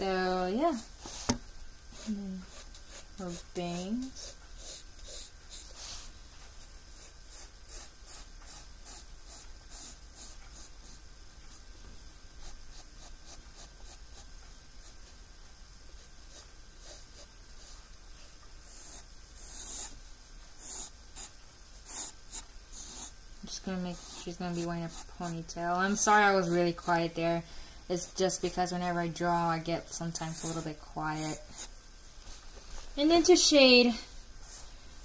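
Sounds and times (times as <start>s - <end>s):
pencil scratching on paper: 1.9s - 6.0s, 7.0s - 11.6s, 12.4s - 15.2s, 16.0s - 17.8s, 18.6s - 20.0s, 20.6s - 27.2s, 30.0s - 31.7s.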